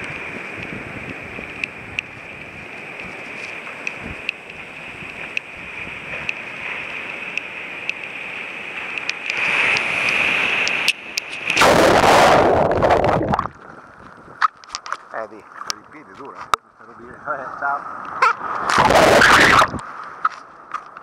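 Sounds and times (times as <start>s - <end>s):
sea surf rushing: 0.0s - 21.0s
breaking whitewater: 5.7s - 13.6s, 17.8s - 21.0s
water splashing: 9.2s - 15.8s, 17.6s - 21.0s.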